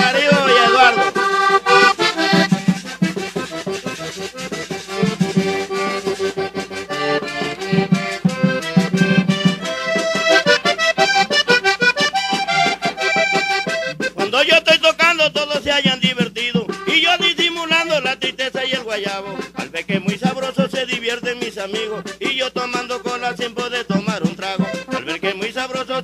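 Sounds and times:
person singing: 0:00.0 - 0:01.2
accordion melody: 0:00.0 - 0:26.0
percussion beat: 0:00.0 - 0:26.0.

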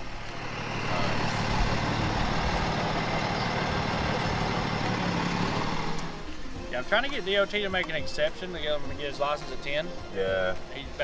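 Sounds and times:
truck diesel engine running: 0:00.0 - 0:06.3.

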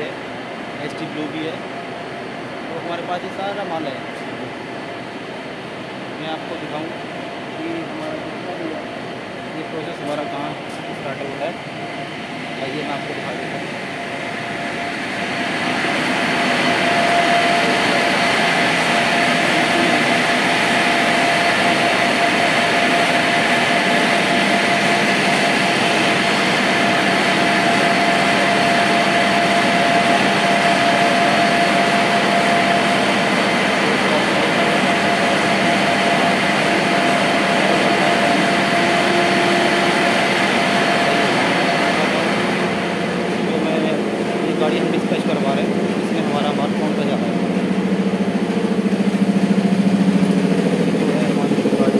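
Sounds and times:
machinery din with whine: 0:00.0 - 0:51.9.

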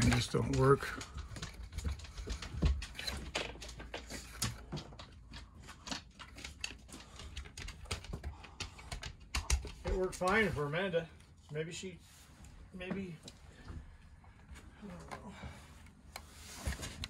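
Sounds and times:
light clicks and taps: 0:00.0 - 0:10.6.

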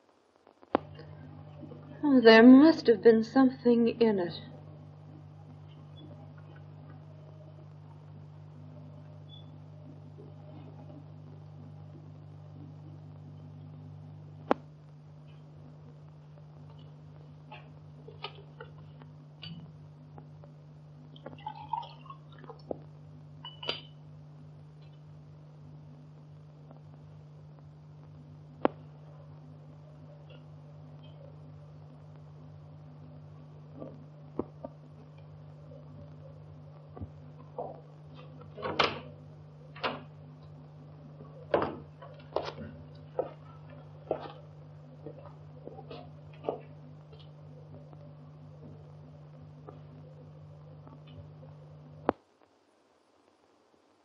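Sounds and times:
low soundtrack hum: 0:03.7 - 0:52.2
glassware clinking: 0:23.5 - 0:24.0
footsteps on a hard floor: 0:41.6 - 0:44.4, 0:45.0 - 0:47.3.

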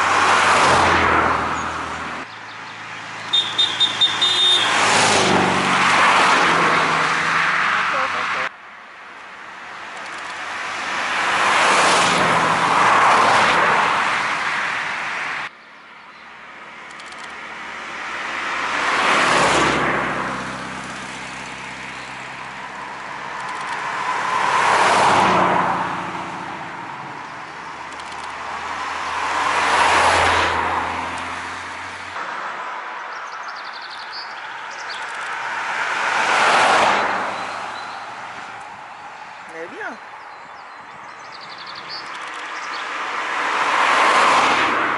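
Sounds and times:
rally cars driving past: 0:17.5 - 0:32.8, 0:34.1 - 0:40.2, 0:41.6 - 0:44.9.

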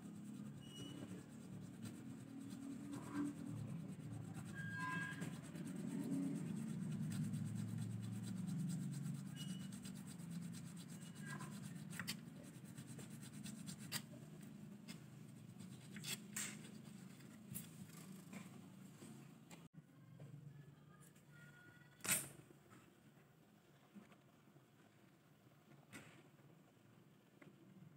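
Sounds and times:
file rasping in string slot: 0:00.1 - 0:14.1.

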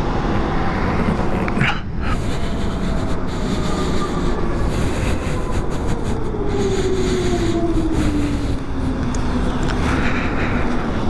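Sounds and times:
wind and road noise: 0:00.0 - 0:11.0
electric motorcycle drivetrain whining: 0:02.2 - 0:11.0.

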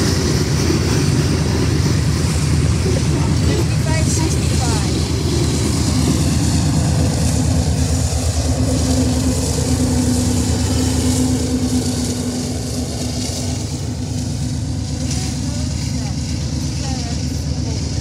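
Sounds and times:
diesel locomotive engine rumble: 0:00.0 - 0:18.0.

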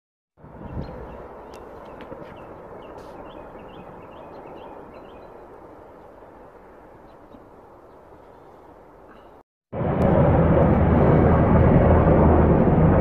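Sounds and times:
helicopters rumbling overhead: 0:00.4 - 0:13.0
bird chirping: 0:00.6 - 0:06.2.

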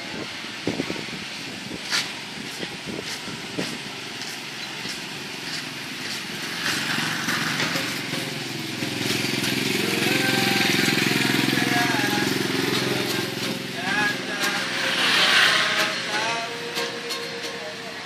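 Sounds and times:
motorcycle engine approaching: 0:04.7 - 0:17.4.

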